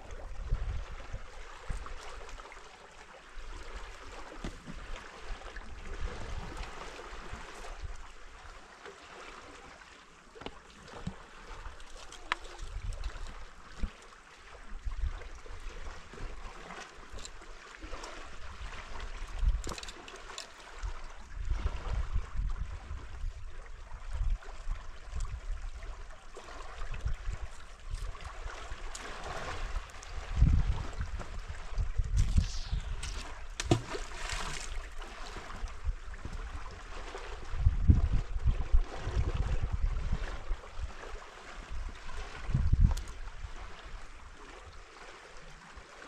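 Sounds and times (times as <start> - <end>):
wind buffeting microphone: 0.0 - 1.9, 26.9 - 40.9, 41.7 - 44.1.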